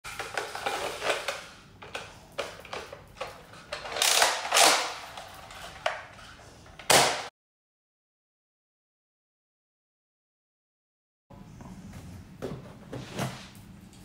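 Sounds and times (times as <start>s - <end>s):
plastic toy blaster clicks: 3.9s - 5.2s.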